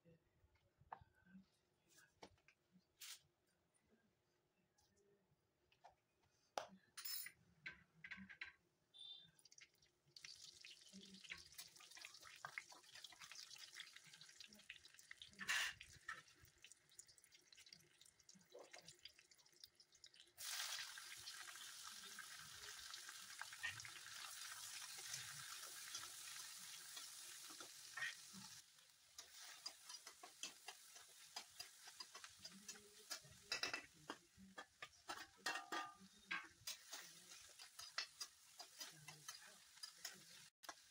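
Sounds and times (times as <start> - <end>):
oil sizzling: 9.4 - 40.9
spatula scraping a pan: 29.2 - 40.9.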